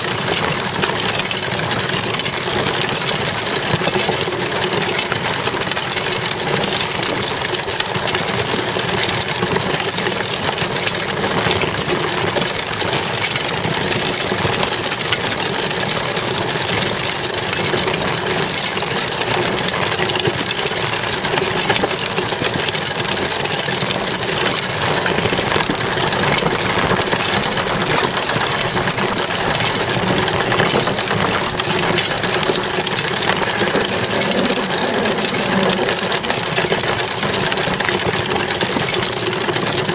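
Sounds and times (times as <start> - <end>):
bicycle rattling: 0.0 - 39.9
bicycle tyre rolling on asphalt: 0.0 - 39.9.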